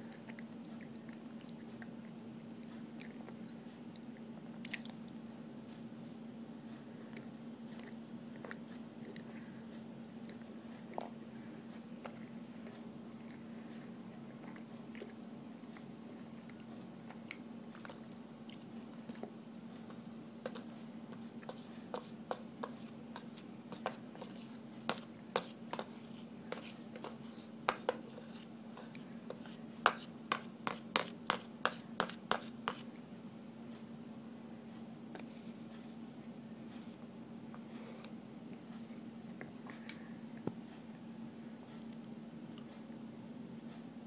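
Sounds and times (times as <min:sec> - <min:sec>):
metal spoon scraping cornstarch: 0:20.0 - 0:32.9.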